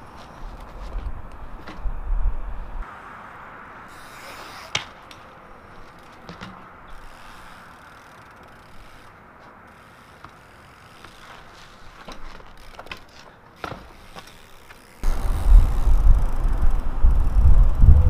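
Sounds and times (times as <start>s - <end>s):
bike tyre and frame taps: 4.2s - 16.7s.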